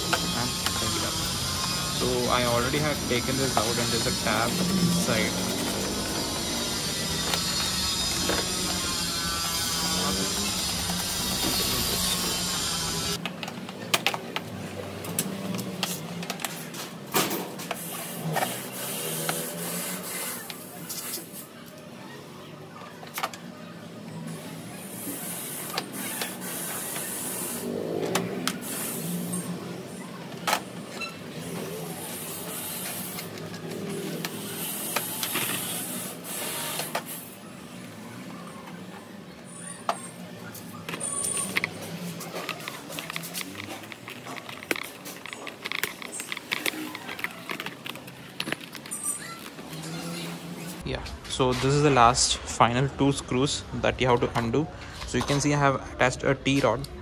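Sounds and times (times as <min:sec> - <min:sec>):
screwdriver clicking and scraping: 0:00.0 - 0:14.2, 0:40.7 - 0:50.2.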